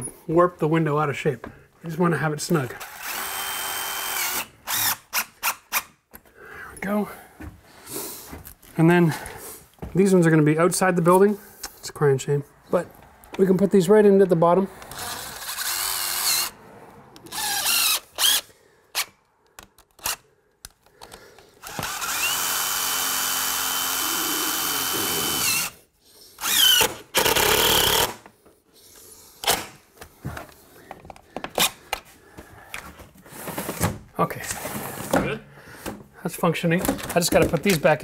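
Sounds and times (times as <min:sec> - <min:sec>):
cordless drill driving screws: 0:02.8 - 0:05.9, 0:14.8 - 0:16.6, 0:17.2 - 0:19.1, 0:19.9 - 0:20.2, 0:21.6 - 0:25.8, 0:26.4 - 0:28.3.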